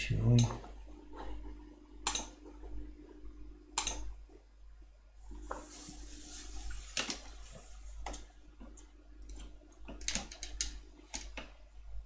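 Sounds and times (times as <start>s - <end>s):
low electrical hum: 0.0s - 12.0s
computer mouse clicks: 2.0s - 2.4s, 3.8s - 4.1s
soft hiss: 4.8s - 9.0s.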